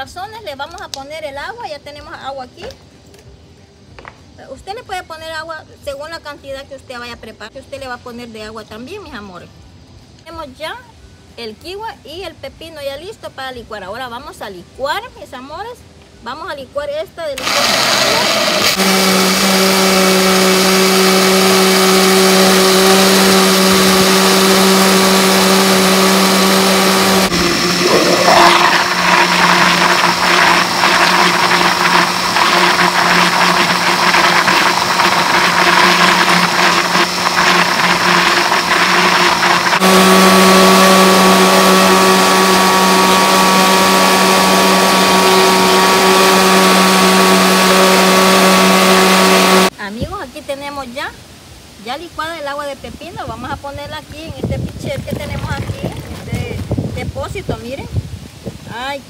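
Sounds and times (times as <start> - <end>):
blender motor running: 17.4 - 49.7, 55.0 - 56.6.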